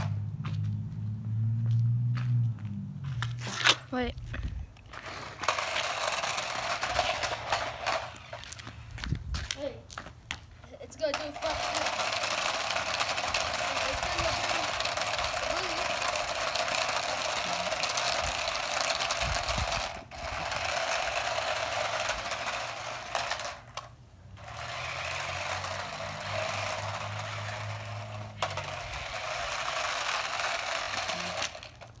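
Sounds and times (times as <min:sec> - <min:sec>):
toy car motor whirring and rattling: 0:04.9 - 0:08.9, 0:10.8 - 0:32.0.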